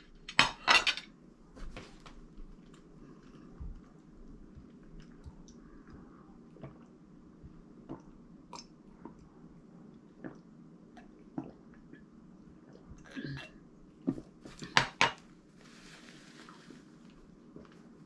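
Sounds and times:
low room hum: 0.0s - 18.0s
person sipping and swallowing: 10.1s - 14.8s.

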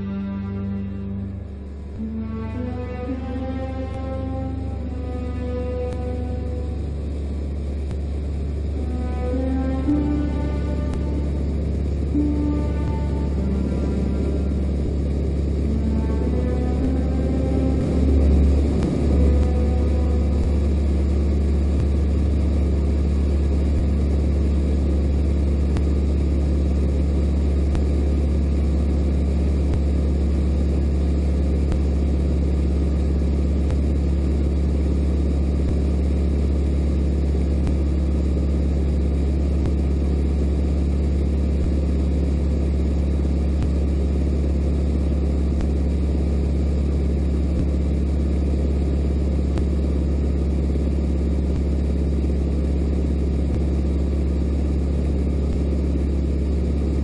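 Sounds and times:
air noise in cockpit: 0.0s - 57.0s
light aircraft engine droning: 0.0s - 57.0s.

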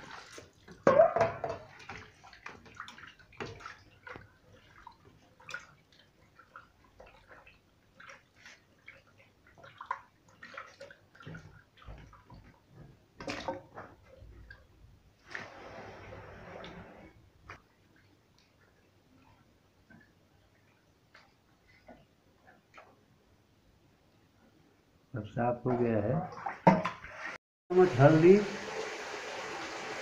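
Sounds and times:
water splashing and dripping: 0.0s - 21.4s.

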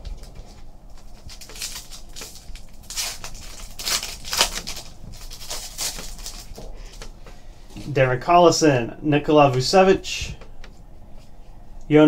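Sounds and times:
foil wrapper crinkling and tearing: 0.9s - 7.2s.

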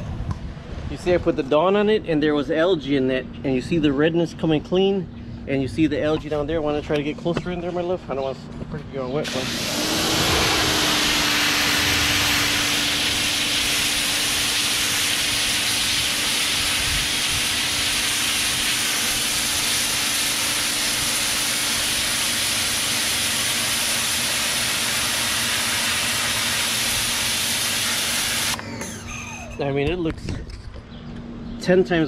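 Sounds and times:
pressure washer motor hum: 9.2s - 29.6s
water jet hissing on brick: 9.3s - 28.6s.

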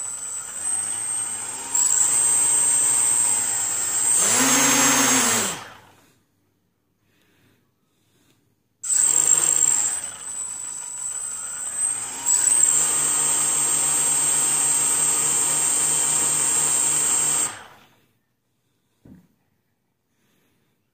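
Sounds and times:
drone motors whining: 0.0s - 5.9s
faint tap: 19.0s - 19.4s.

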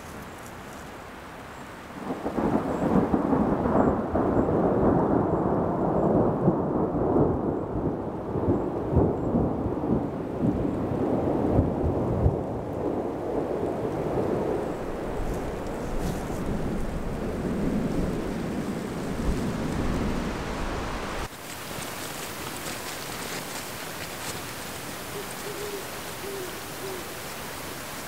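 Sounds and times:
thunder rumbling: 2.0s - 21.3s.

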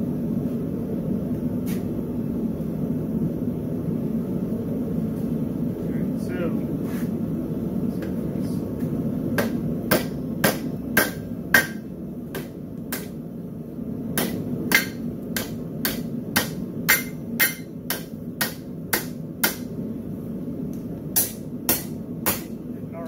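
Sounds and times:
steady low rumble: 0.0s - 23.0s
hammer ringing on anvil: 9.4s - 11.8s, 14.2s - 19.7s.

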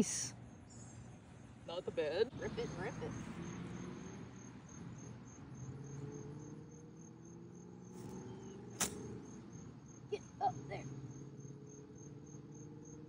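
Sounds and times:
insects chirping: 0.0s - 13.0s
golf club striking ball: 8.0s - 9.4s.

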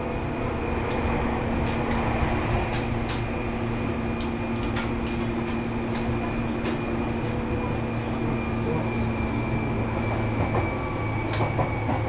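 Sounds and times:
train running heard from inside: 0.0s - 12.0s
train clicks and clacks: 0.8s - 12.0s.

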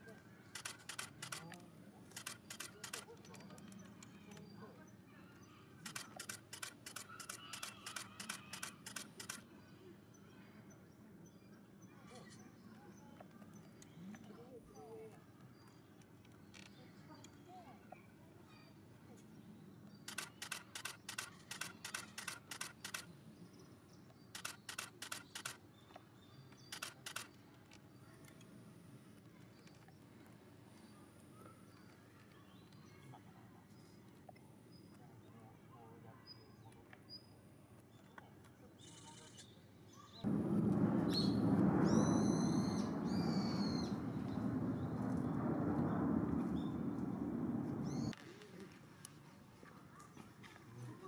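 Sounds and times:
camera shutter clicking: 0.6s - 3.1s, 5.9s - 9.4s, 20.1s - 23.1s, 24.4s - 25.6s, 26.7s - 27.3s.

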